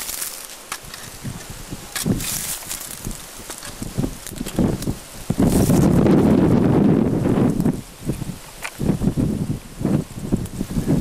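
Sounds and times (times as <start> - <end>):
wind hiss: 0.0 - 11.0.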